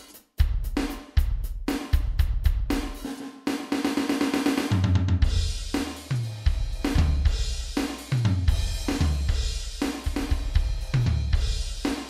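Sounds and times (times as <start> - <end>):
electronic drum kit groove: 0.0 - 12.0
music with bass line: 4.6 - 12.0.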